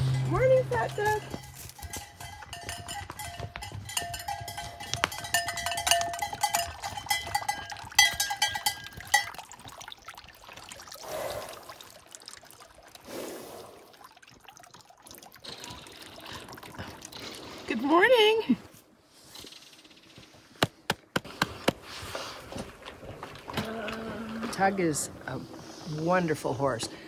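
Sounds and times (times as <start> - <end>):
horse bells clanking: 0.0 - 10.2.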